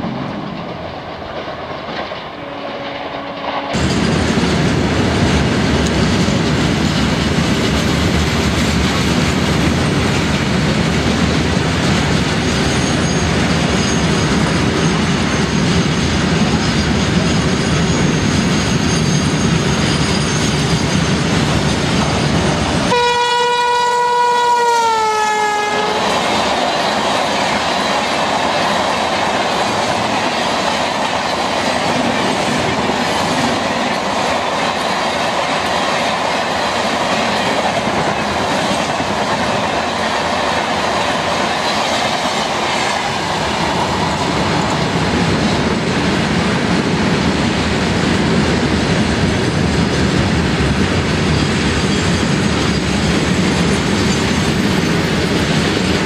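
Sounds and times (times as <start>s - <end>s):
train coaches rumbling and clacking: 0.0s - 56.0s
train horn blast: 2.3s - 3.8s, 22.9s - 26.2s.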